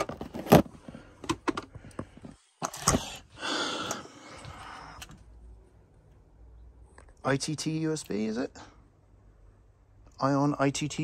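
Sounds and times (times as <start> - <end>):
clicks and knocks on a desk: 1.2 - 3.0.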